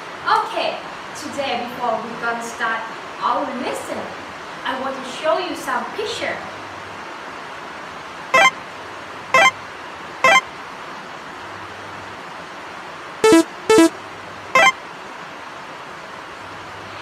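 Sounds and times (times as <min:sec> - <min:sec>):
synthetic pop blips: 0:10.2 - 0:10.4, 0:13.2 - 0:13.9.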